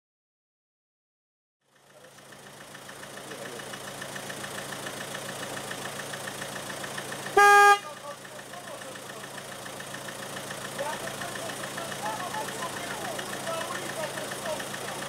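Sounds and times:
locomotive horn blast: 7.3s - 8.0s
fast even ticking: 8.0s - 15.0s.

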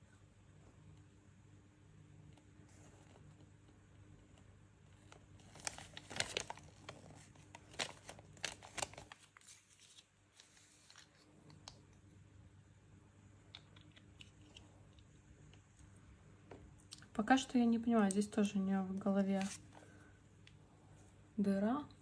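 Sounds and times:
paper crinkling: 4.9s - 11.8s, 19.2s - 20.0s.

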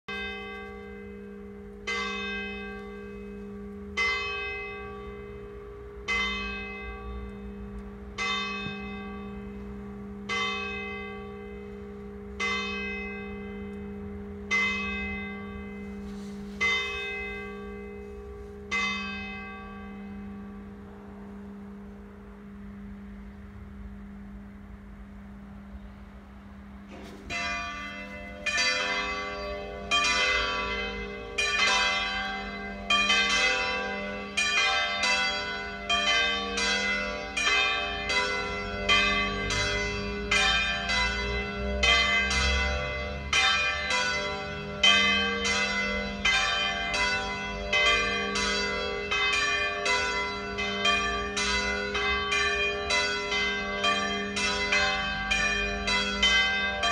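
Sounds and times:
church bells pealing: 0.1s - 25.7s, 26.4s - 56.9s.

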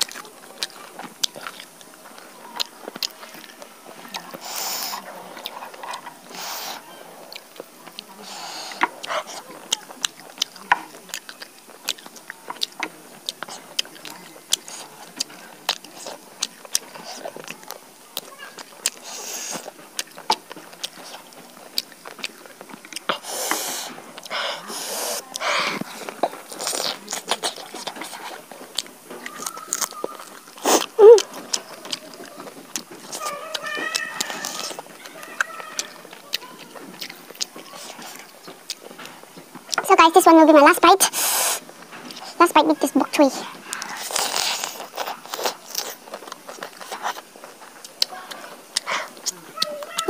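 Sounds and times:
roasted chicken tearing: 0.0s - 39.9s, 43.4s - 50.0s
chewing with wet mouth clicks: 0.0s - 50.0s
meat tearing from carcass: 25.8s - 38.8s.

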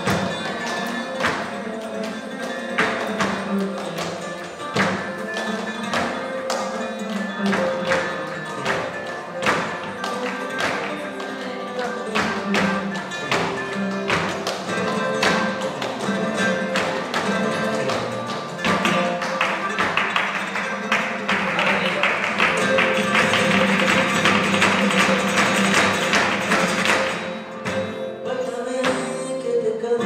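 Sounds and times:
flamenco guitar playing: 0.0s - 30.0s
sharp percussive strikes: 12.0s - 28.0s.

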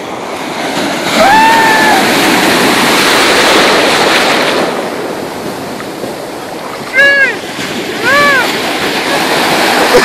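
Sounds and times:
ocean surf breaking: 0.0s - 10.0s.

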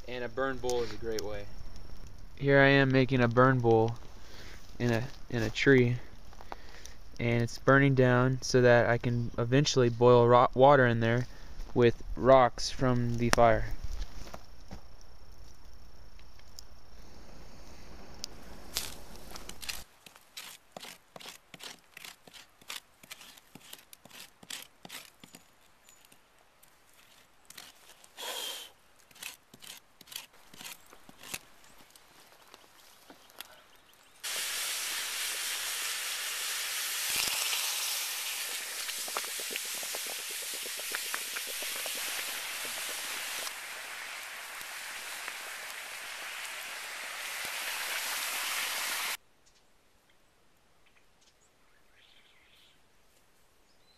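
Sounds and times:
hot rocks sizzling in water: 34.2s - 49.2s
sharp clicks and crackles: 38.4s - 43.5s.

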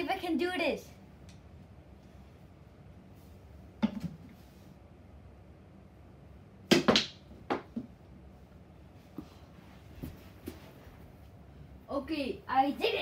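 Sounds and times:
balls knocking on cushions: 6.7s - 8.0s.

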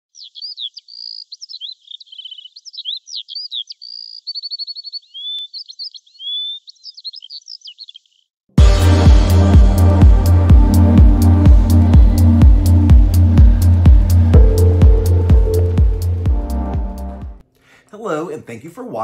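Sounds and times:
songbird singing: 0.1s - 8.4s
electronic music with bass beat: 8.6s - 17.4s.

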